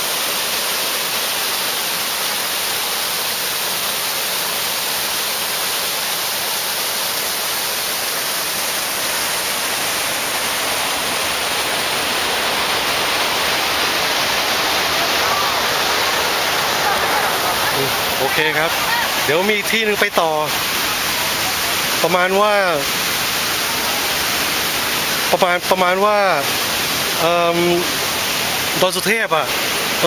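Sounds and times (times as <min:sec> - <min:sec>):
fountain water splashing into pool: 0:00.0 - 0:30.0.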